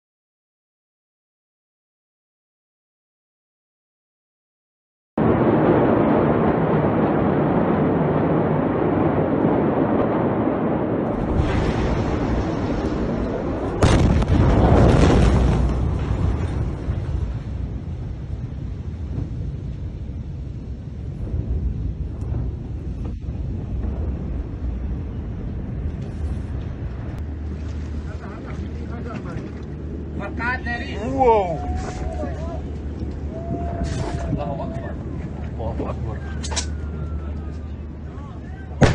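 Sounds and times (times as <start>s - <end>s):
explosion blast and deep rumble: 5.2s - 38.9s.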